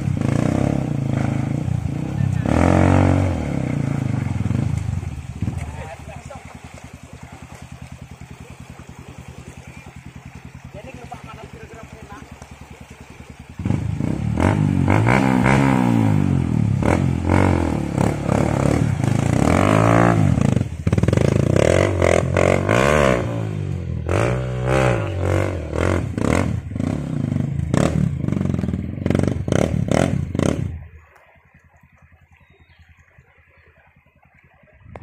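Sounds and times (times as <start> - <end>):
dirt bike engine revving: 0.0 - 5.5, 13.6 - 30.8.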